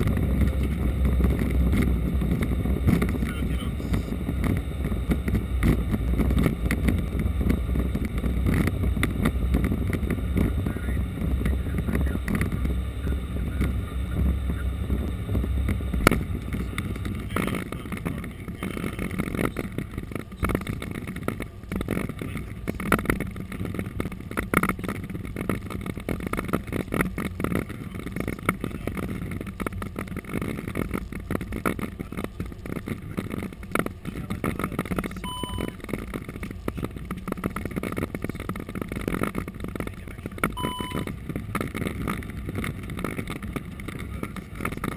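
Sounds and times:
airliner rolling on runway: 0.0s - 44.9s
brief cockpit beeps: 35.2s - 35.8s, 40.6s - 41.2s.

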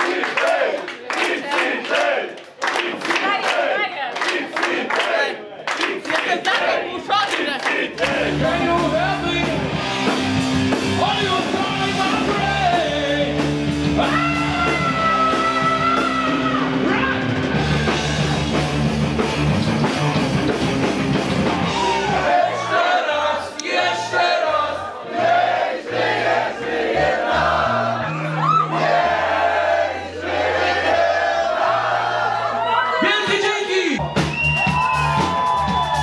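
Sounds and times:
crowd voices: 0.0s - 36.0s
hard rock band playing live: 8.1s - 22.2s
person singing: 11.0s - 17.4s.

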